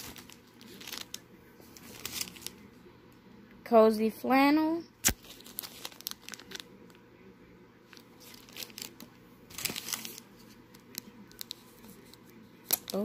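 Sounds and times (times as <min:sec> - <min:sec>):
plastic bags crinkling: 0:00.0 - 0:01.2, 0:01.8 - 0:02.6, 0:05.1 - 0:06.9, 0:08.0 - 0:11.6, 0:12.7 - 0:13.0.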